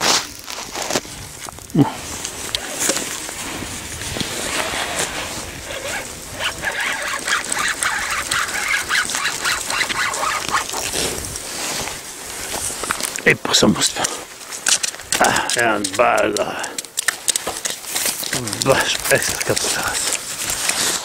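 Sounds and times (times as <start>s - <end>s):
fishing reel clicking and squeaking: 5.7s - 10.9s
rustling from handling: 13.9s - 21.0s.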